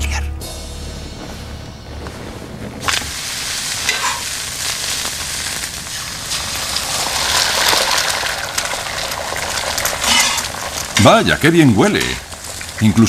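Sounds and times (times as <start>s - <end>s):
sharp crackles: 0.6s - 13.0s
food sizzling on griddle: 2.8s - 13.0s.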